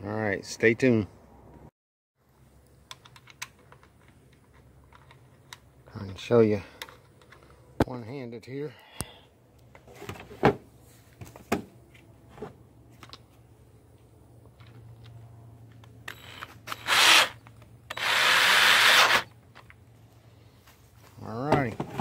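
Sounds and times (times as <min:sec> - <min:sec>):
power drill running: 0:16.1 - 0:19.3.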